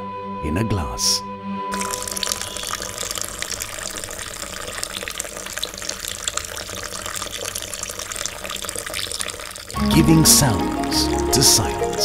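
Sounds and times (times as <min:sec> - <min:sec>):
water pouring into a glass: 0:01.7 - 0:12.0.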